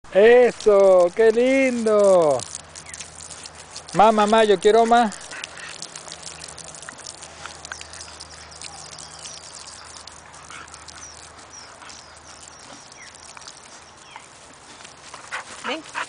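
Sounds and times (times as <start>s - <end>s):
hose water spraying: 0.1s - 16.0s
dog rustling in dry grass: 5.6s - 16.0s.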